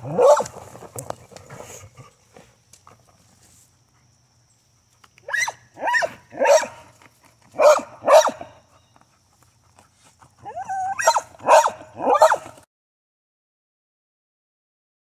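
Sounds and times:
dog barking: 0:00.0 - 0:00.5, 0:05.3 - 0:06.8, 0:07.6 - 0:08.6, 0:10.6 - 0:12.5.

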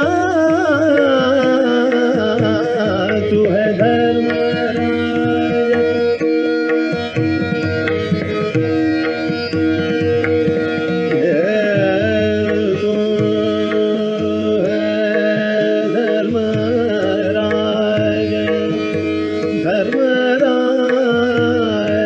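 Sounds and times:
man singing: 0:00.0 - 0:06.0, 0:11.1 - 0:22.0
harmonium: 0:00.0 - 0:22.0
tabla strokes: 0:00.0 - 0:22.0
tanpura drone: 0:00.0 - 0:22.0.

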